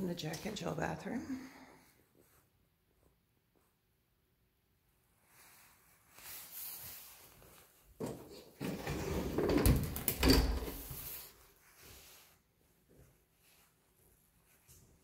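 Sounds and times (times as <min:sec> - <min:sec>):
closet doors sliding and scraping: 0:06.2 - 0:12.2.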